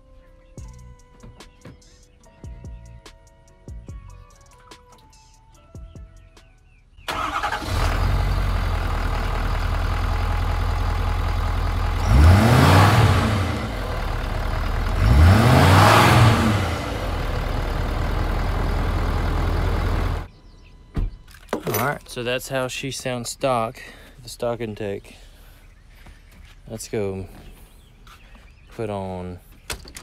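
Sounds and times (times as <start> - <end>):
diesel engine idling and revving: 7.1 - 20.4.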